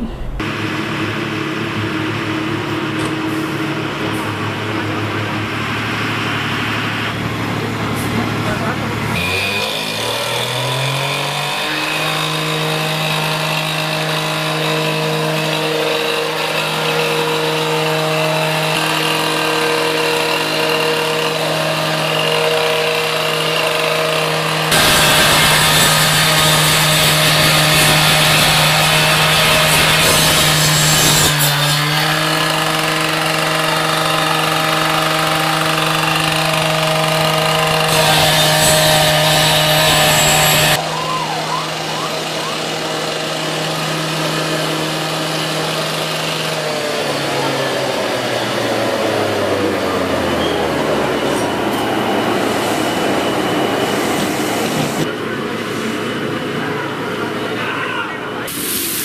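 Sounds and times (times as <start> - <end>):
cut-off saw running: 0.0 - 56.0
saw grinding into brick: 9.1 - 40.8, 42.1 - 50.7.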